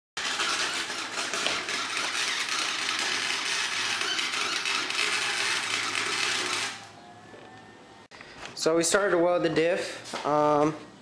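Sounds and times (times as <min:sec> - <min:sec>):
arc welding crackle: 0:00.2 - 0:06.8.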